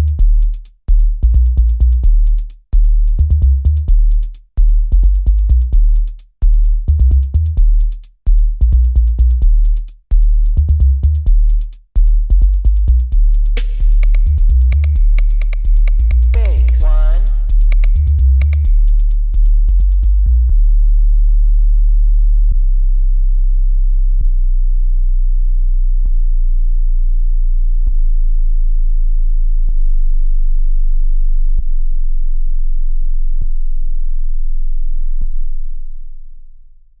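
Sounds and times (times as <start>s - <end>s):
pulsing bass beats: 0.0s - 36.0s
deep steady sine tone: 20.2s - 36.9s.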